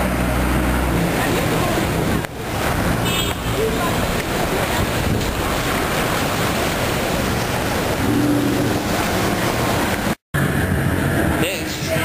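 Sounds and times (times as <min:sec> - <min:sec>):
city street noise: 0:00.0 - 0:12.0
wind buffeting microphone: 0:03.9 - 0:11.4.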